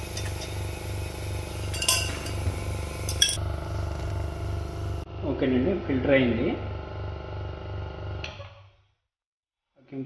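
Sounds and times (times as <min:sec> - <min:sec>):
vacuum pump pulsing hum: 0:00.0 - 0:08.2
glassware clinking: 0:01.7 - 0:02.4, 0:03.0 - 0:03.4.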